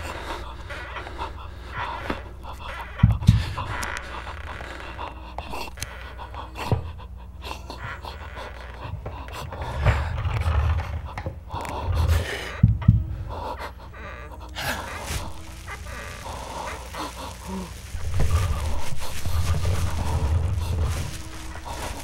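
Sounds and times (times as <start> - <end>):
heavy panting breaths: 0.0 - 22.0
steady low rumble: 0.0 - 22.0
dull thumps: 1.7 - 4.3, 8.8 - 13.4.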